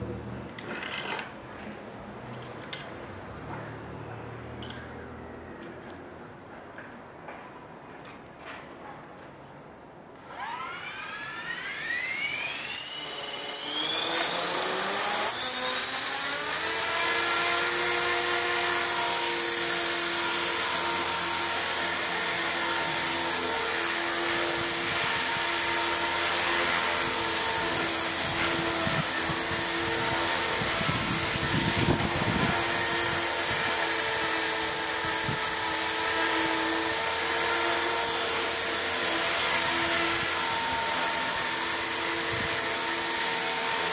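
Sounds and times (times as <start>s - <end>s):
model helicopter motor whine: 10.2s - 43.9s.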